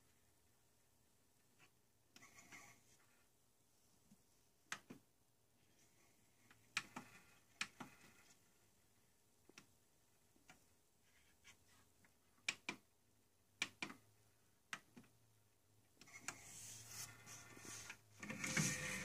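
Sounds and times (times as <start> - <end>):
soft noisy rustle: 16.1 - 19.0.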